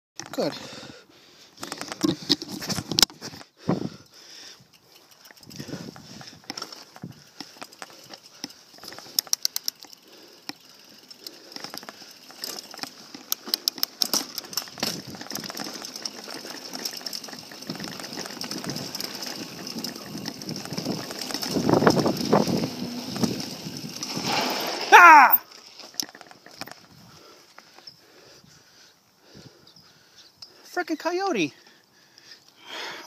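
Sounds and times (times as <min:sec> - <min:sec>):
bike freewheel ticking: 0:04.3 - 0:27.3
tyres rolling over gravel: 0:05.4 - 0:27.0.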